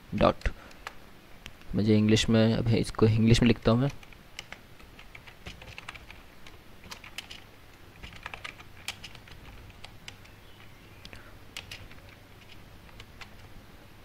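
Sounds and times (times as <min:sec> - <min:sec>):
faint low hum: 0:00.0 - 0:14.0
keyboard key clicks: 0:08.0 - 0:13.5.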